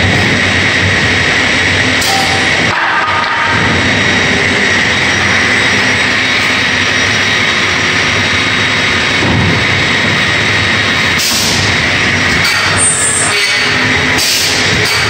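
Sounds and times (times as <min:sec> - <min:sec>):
constant high whine: 0:00.0 - 0:15.0
saw line machinery rushing: 0:02.7 - 0:09.3.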